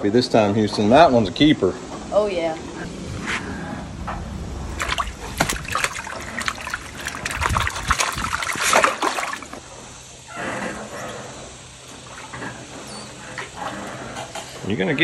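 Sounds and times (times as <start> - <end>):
water trickling: 4.3 - 9.7
fish splashing in water: 4.4 - 9.7.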